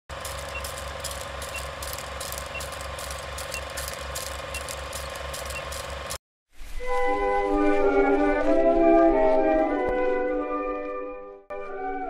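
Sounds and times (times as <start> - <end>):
film projector clatter: 0.1 - 6.2
hum and crackle: 0.1 - 8.7.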